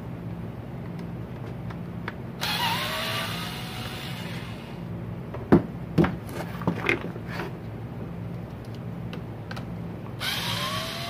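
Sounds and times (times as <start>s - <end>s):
cordless drill motor whine: 2.4s - 4.9s, 10.2s - 11.0s.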